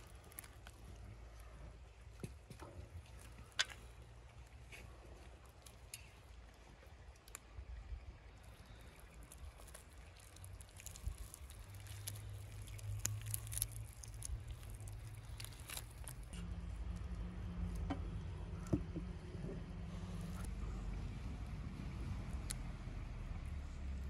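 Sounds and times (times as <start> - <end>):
wet squishing of meat: 0.0 - 16.4
faint low rumble: 0.0 - 24.0.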